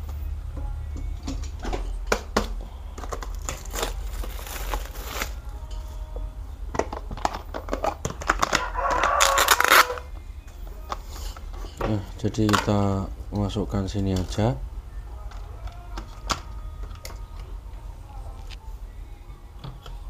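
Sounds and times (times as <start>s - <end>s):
low hum: 0.0s - 20.0s
plastic crinkling and clicking: 1.4s - 5.4s, 6.8s - 10.0s.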